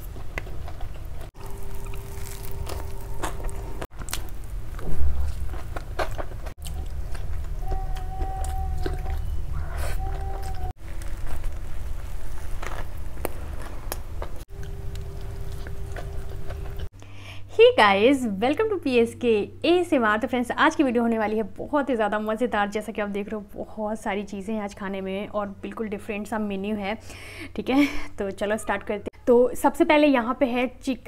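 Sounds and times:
close-miked chewing and biting: 0.0 - 16.9.

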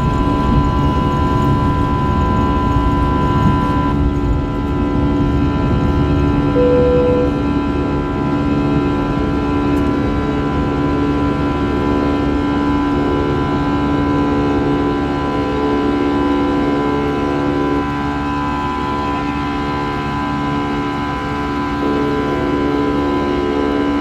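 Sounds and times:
jet engines droning in cabin: 0.0 - 24.0.

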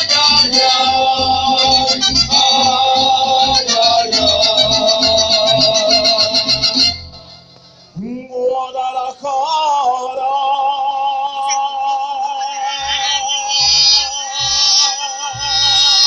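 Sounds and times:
low bass notes: 0.0 - 9.1, 12.8 - 16.0
held melody with vibrato: 0.0 - 11.6, 12.6 - 16.0.

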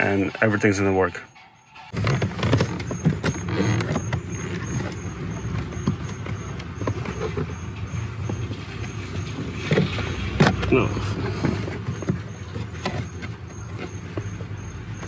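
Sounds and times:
faint high-pitched beeping: 0.0 - 6.6
hands rustling under dashboard: 1.9 - 15.0.

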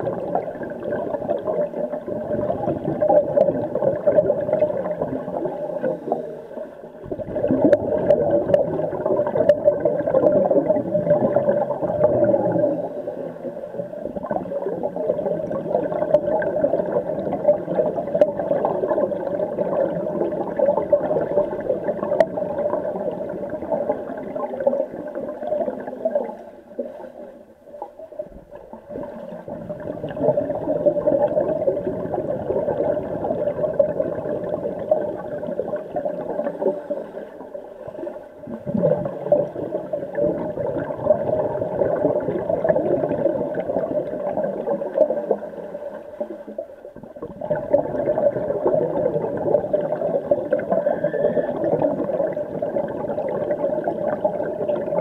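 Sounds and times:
underwater bubbles gurgling: 0.0 - 55.0.

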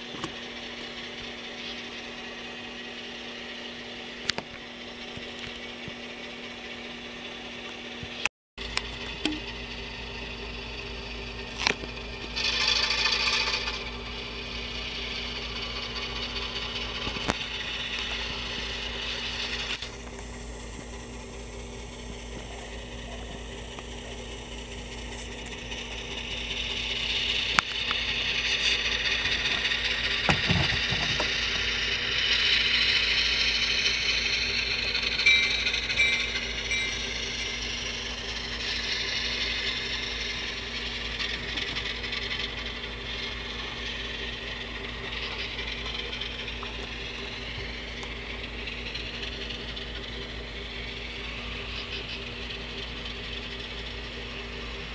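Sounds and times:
model train motor whirring: 0.0 - 54.9
steady low hum: 0.0 - 54.9
wheels rattling on track: 8.6 - 54.9.

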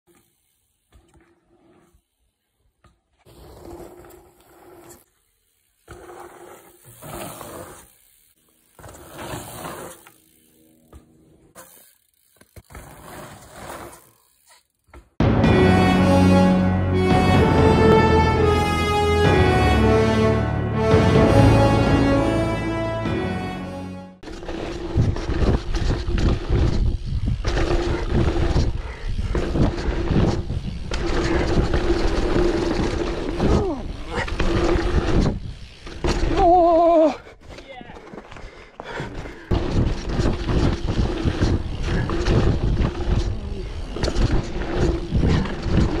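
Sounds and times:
bike tyres rolling on dirt: 0.1 - 15.0, 24.2 - 46.0
freewheel hub buzzing: 0.1 - 15.2, 24.2 - 36.8, 39.2 - 46.0.

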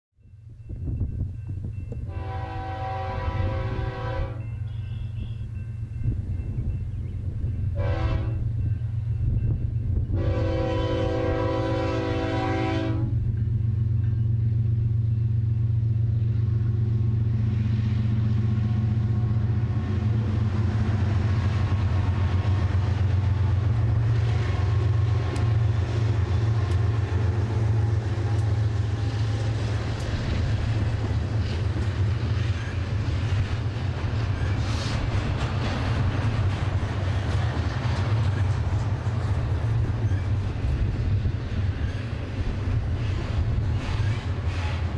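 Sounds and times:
diesel locomotives rumbling: 0.2 - 44.9
train wheels rolling on rails: 0.2 - 44.9
locomotive air horn chord: 2.1 - 5.5, 7.7 - 8.4, 10.2 - 13.2.

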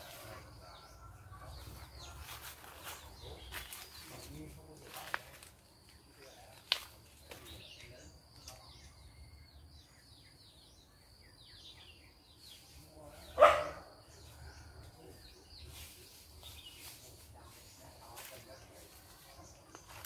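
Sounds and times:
bird chirps: 0.0 - 20.0
dog barking: 13.4 - 13.9.

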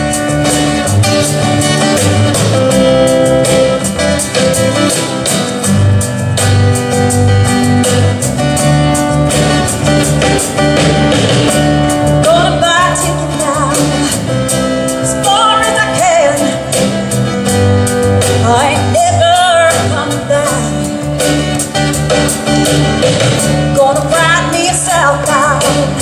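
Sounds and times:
bass line: 0.0 - 26.0
strummed acoustic guitar: 0.0 - 26.0
woman singing: 12.2 - 14.2, 15.0 - 16.9, 18.3 - 20.9, 23.7 - 26.0.

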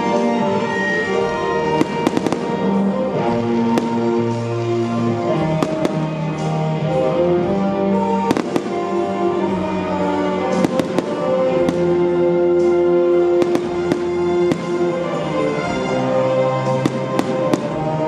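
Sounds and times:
loud music with sustained notes: 0.0 - 18.0
firework shells bursting: 10.5 - 15.5, 16.6 - 18.0.

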